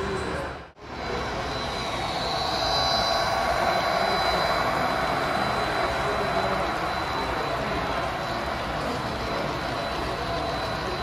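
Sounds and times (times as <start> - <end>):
model train motor hum and whine: 0.8 - 11.0.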